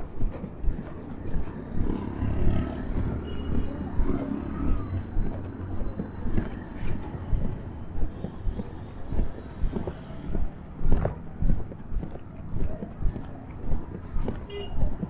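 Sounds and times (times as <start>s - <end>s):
auto-rickshaw engines: 0.0s - 15.0s
footsteps: 0.0s - 15.0s
voices: 1.0s - 10.3s
motorcycle passing close: 1.2s - 5.4s.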